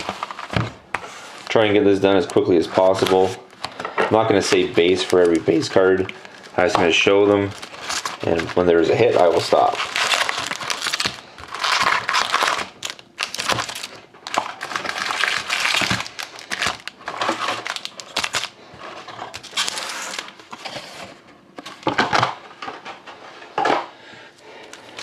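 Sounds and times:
foil wrappers crinkling: 0:01.2 - 0:20.9.

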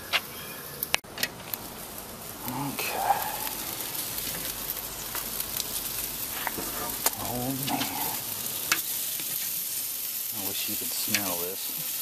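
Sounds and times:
chicken sizzling on a grill: 0:00.0 - 0:12.0.

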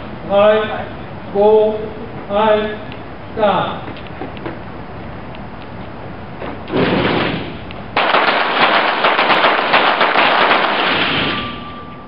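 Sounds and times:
pistols firing rapidly: 0:08.0 - 0:11.4.

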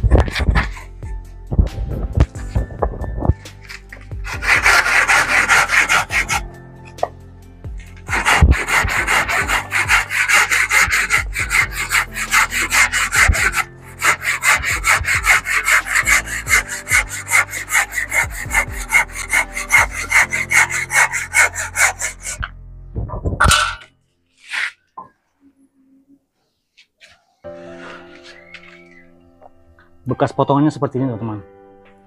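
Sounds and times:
handsaw cutting hard wood: 0:03.6 - 0:06.5, 0:07.8 - 0:22.4.

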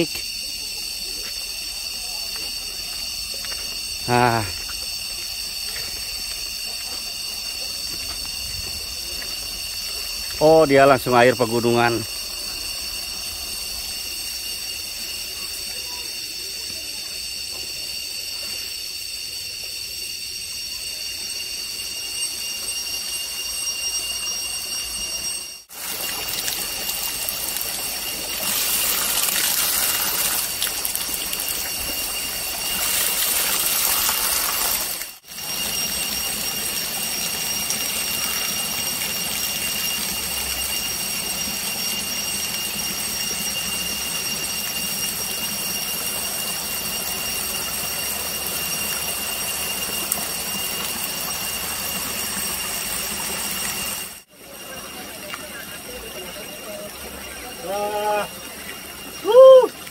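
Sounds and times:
high-pitched ringing drone: 0:00.0 - 0:59.9
water flowing and splashing: 0:25.7 - 0:54.2.

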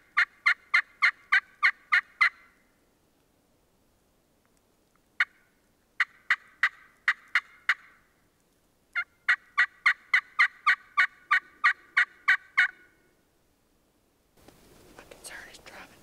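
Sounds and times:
turkey yelping: 0:00.2 - 0:02.5, 0:06.0 - 0:08.0, 0:09.0 - 0:13.0.

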